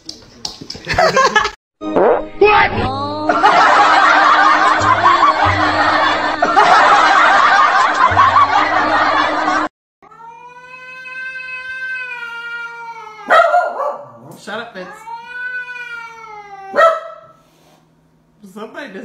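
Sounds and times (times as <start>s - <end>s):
music: 1.8s - 9.7s
canned laughter: 3.3s - 9.7s
cat yowling: 10.0s - 14.0s, 14.8s - 17.3s.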